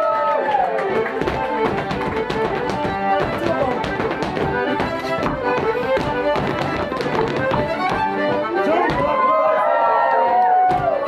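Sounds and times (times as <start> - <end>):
fiddle playing dance tune: 0.2 - 11.0
dancers' percussive clicks: 0.8 - 8.1.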